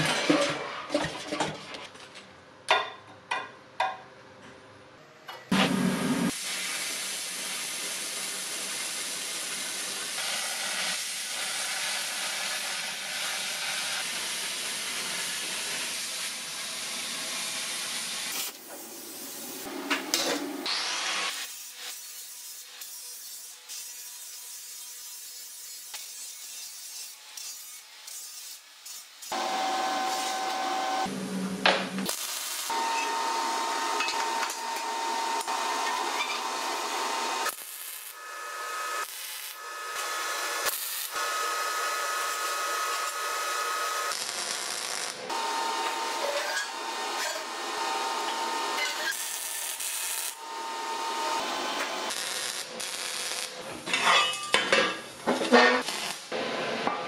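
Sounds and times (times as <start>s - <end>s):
power tool whine: 29.3s - 31.1s, 32.7s - 44.2s, 45.3s - 52.1s.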